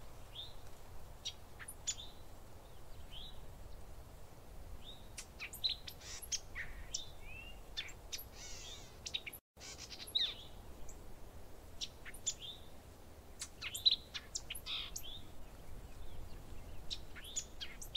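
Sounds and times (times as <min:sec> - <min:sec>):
songbirds chirping and whistling: 0:04.8 - 0:11.0, 0:11.8 - 0:12.7, 0:13.3 - 0:17.9.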